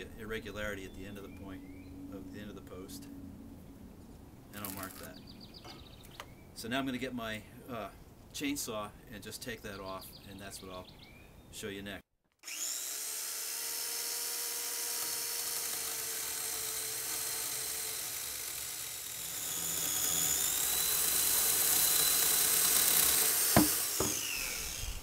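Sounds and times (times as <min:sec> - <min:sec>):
electric chainsaw cutting wood: 0:12.4 - 0:25.0
knocks: 0:23.5 - 0:24.2.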